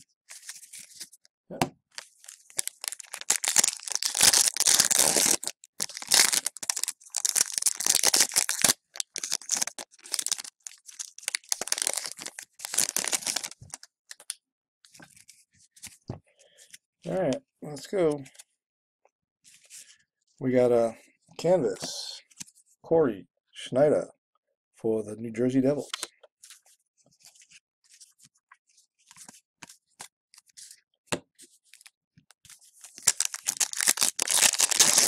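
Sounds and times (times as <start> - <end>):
foil wrapper crinkling and tearing: 1.9 - 14.2, 32.8 - 35.0.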